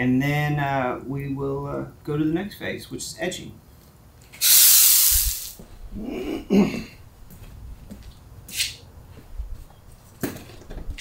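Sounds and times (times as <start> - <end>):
hose water jet hissing: 4.4 - 5.6.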